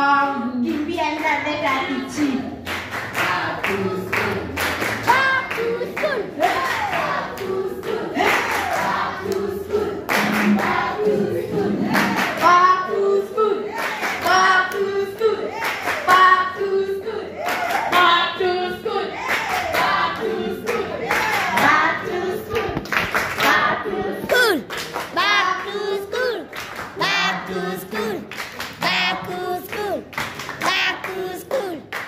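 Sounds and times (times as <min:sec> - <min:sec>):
people singing together: 0:00.0 - 0:32.0
hand-clapping: 0:02.2 - 0:10.8, 0:11.9 - 0:12.6, 0:13.8 - 0:16.3, 0:17.4 - 0:18.2, 0:19.2 - 0:21.8, 0:22.4 - 0:27.2, 0:27.9 - 0:32.0.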